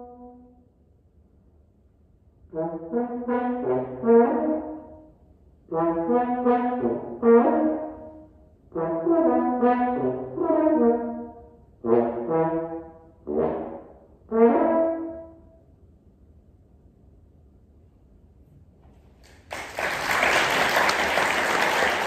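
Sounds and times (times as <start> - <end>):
solo french horn playing: 0.0 - 0.6, 2.5 - 15.5.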